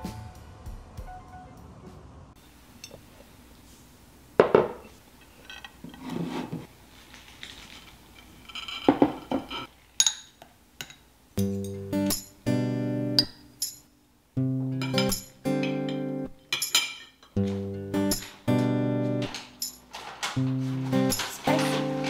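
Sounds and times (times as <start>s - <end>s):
ceramic plates clunking on table: 4.4s - 4.8s
metal spoon clinking in bowls: 8.1s - 12.3s, 13.2s - 13.9s, 14.8s - 17.5s, 19.2s - 19.9s.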